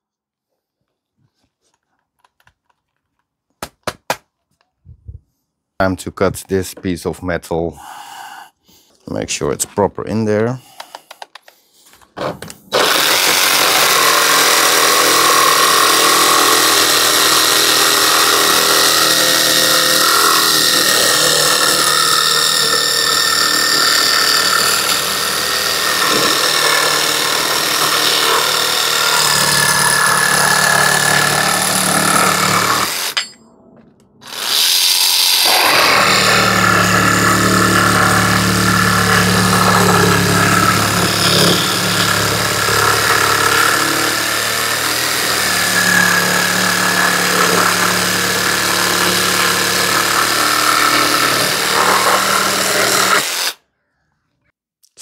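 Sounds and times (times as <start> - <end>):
saw cutting metal: 12.7 - 33.4, 34.2 - 53.6.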